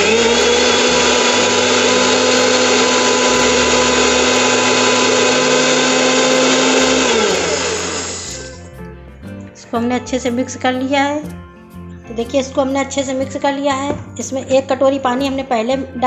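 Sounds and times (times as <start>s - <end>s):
mixer grinder motor whine: 0.0s - 8.7s.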